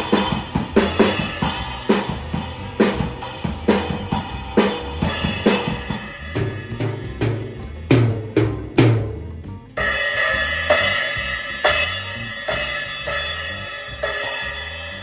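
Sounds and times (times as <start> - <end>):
bass drum hits: 0.0 - 15.0
cymbal hits: 9.8 - 15.0.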